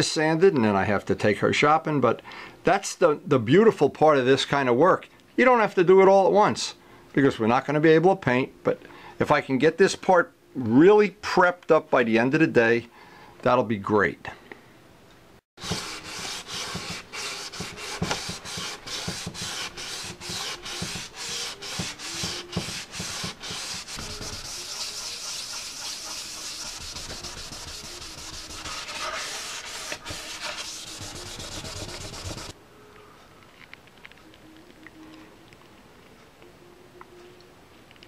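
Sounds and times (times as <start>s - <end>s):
hand sanding rubbing strokes: 15.6s - 32.6s.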